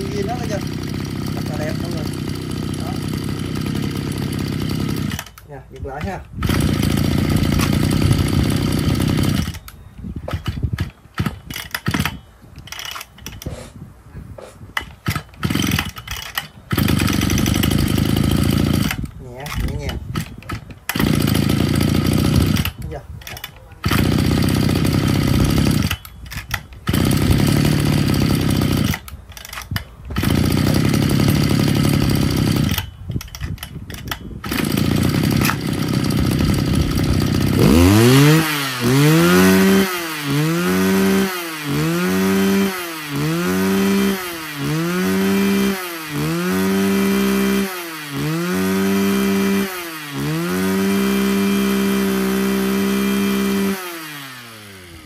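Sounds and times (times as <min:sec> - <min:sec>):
brush cutter engine running: 0:00.0 - 0:13.6, 0:14.8 - 0:55.0.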